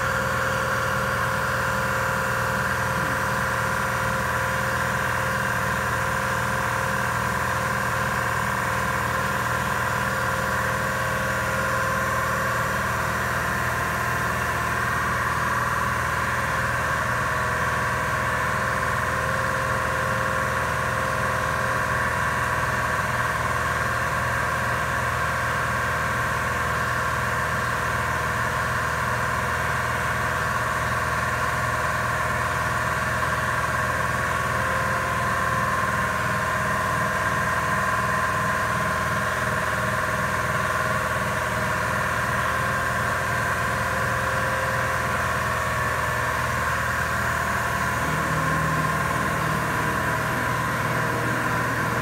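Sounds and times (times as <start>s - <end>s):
industrial machine drone: 0.0s - 24.4s, 42.1s - 52.0s.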